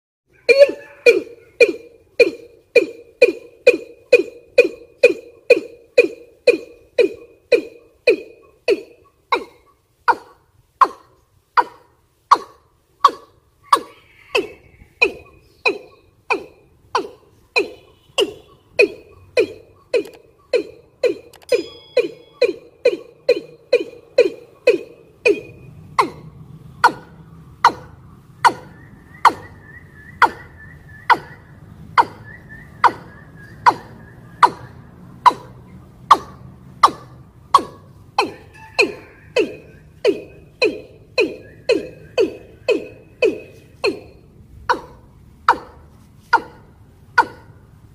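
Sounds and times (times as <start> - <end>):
bird call with descending notes: 17.6 - 26.2, 28.4 - 35.5, 38.2 - 44.1
bird calling with falling note: 21.2 - 23.4
faint high short notes: 21.4 - 22.8.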